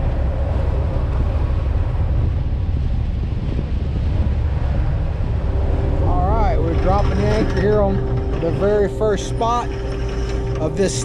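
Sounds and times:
boat engine rumbling: 0:00.0 - 0:11.0
wind noise on microphone: 0:00.0 - 0:11.0.

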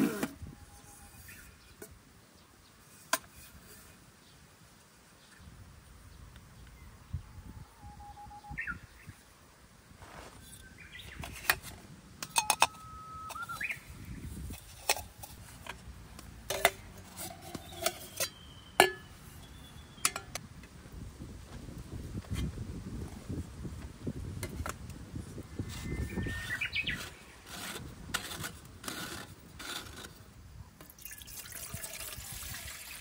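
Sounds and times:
bird chirps: 0:07.7 - 0:09.2, 0:12.3 - 0:14.3, 0:17.6 - 0:20.2, 0:25.7 - 0:27.4.

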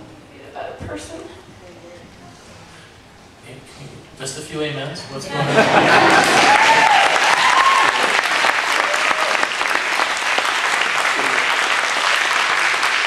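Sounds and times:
congregation applauding: 0:05.6 - 0:13.0.

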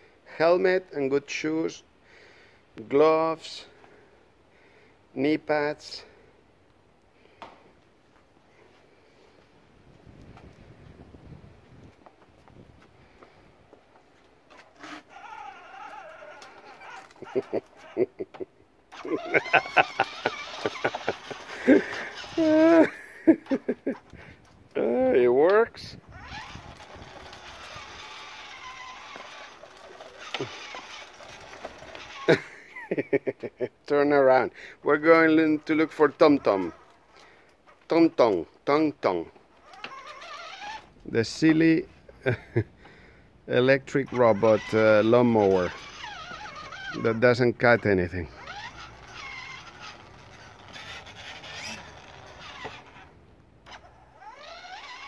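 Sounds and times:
toy motorbike whirring: 0:14.5 - 0:24.3, 0:25.8 - 0:32.6, 0:35.8 - 0:37.2, 0:39.5 - 0:41.0, 0:43.8 - 0:55.0.

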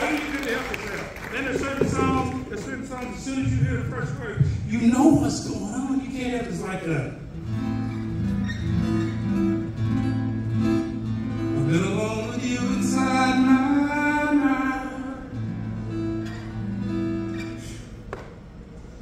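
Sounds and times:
acoustic guitar chords: 0:01.4 - 0:05.7, 0:07.1 - 0:19.0
man singing: 0:11.6 - 0:15.5.

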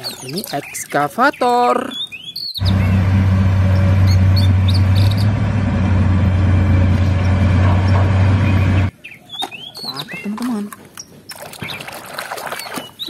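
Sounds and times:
birds chirping: 0:00.0 - 0:13.0
excavator diesel engine running: 0:02.6 - 0:08.9.

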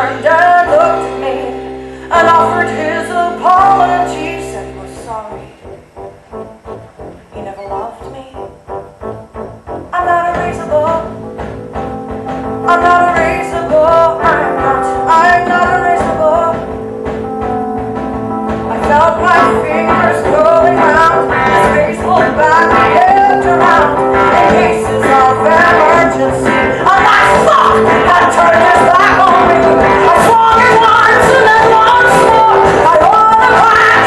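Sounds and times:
person singing: 0:00.0 - 0:05.6, 0:12.5 - 0:16.9, 0:18.6 - 0:34.0
rock band playing: 0:00.0 - 0:34.0.

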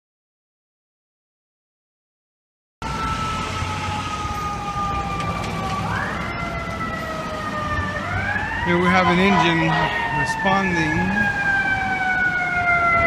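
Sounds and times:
city traffic noise: 0:02.8 - 0:13.0
fire engine siren wailing: 0:02.8 - 0:13.0.

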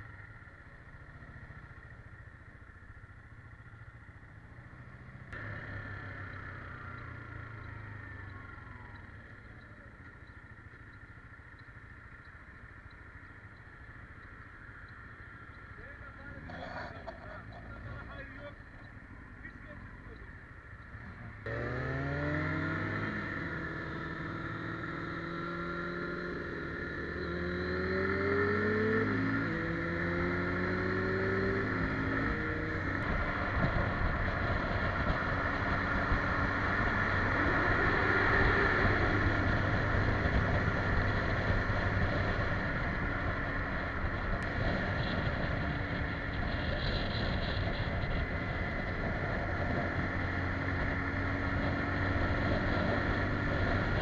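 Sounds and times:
motorcycle engine accelerating: 0:00.0 - 0:54.0
rush of wind: 0:27.4 - 0:54.0.

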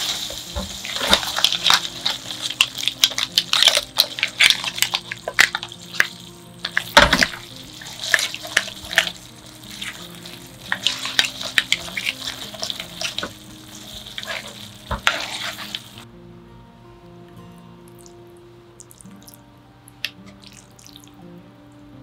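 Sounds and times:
sauce sizzling in a frying pan: 0:00.0 - 0:16.0
tongs clicking and scraping pan: 0:00.0 - 0:16.0.

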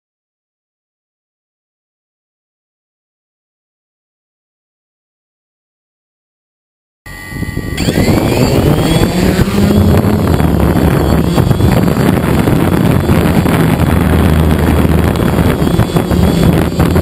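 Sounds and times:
quadcopter propellers buzzing: 0:07.1 - 0:17.0
propeller wash on microphone: 0:07.9 - 0:17.0.

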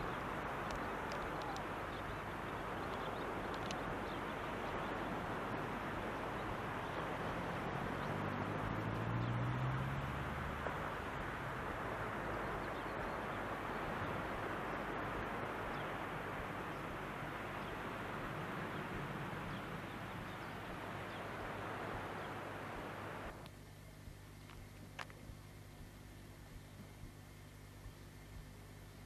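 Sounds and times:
faint bird chirps: 0:00.0 - 0:05.3
steady rushing hiss: 0:00.0 - 0:29.0.

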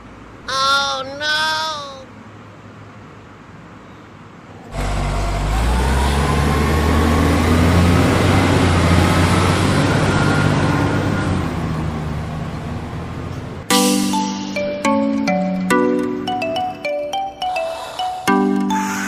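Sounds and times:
truck engine revving: 0:04.7 - 0:13.7.

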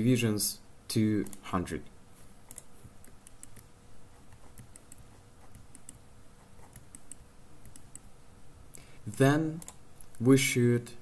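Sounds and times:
keyboard and mouse clicks: 0:02.4 - 0:03.7, 0:04.3 - 0:06.0, 0:06.6 - 0:08.1.

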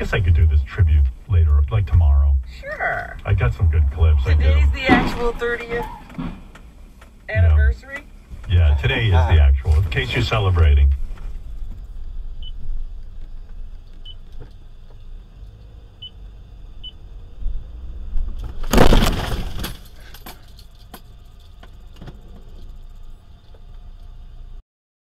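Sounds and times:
car engine rumble: 0:00.0 - 0:24.6
car crash: 0:03.2 - 0:06.9, 0:18.0 - 0:21.2.

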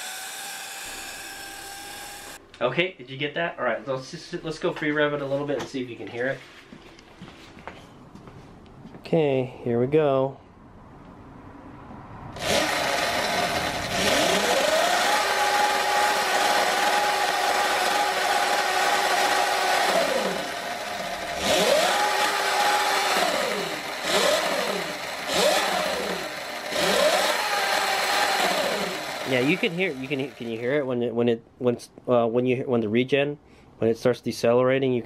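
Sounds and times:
electric motor whine: 0:00.0 - 0:02.4, 0:12.4 - 0:30.6.

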